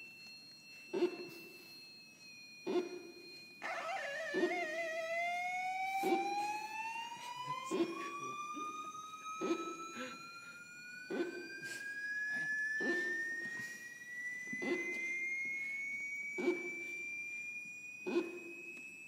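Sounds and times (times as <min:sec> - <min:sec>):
steady higher tone: 0:00.0 - 0:19.0
rising tone with overtones: 0:03.6 - 0:17.8.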